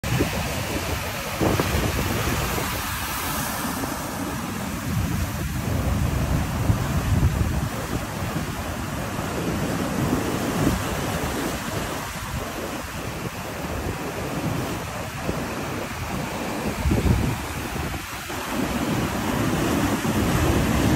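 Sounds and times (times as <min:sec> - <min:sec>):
surf breaking over rocks: 0:00.0 - 0:20.9
wind buffeting microphone: 0:00.0 - 0:20.9.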